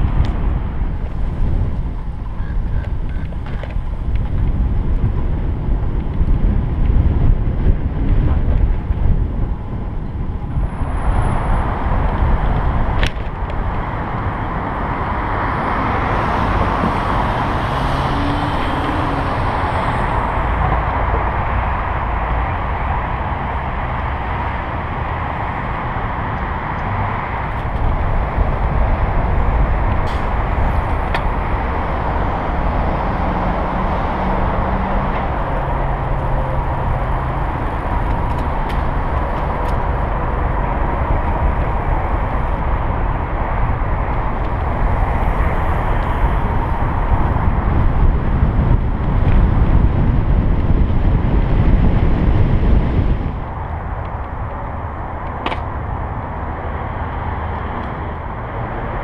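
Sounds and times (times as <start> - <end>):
passing road traffic: 0.0 - 59.0
wind rumbling on microphone: 0.0 - 59.0
bicycle tyre noise: 34.5 - 55.8.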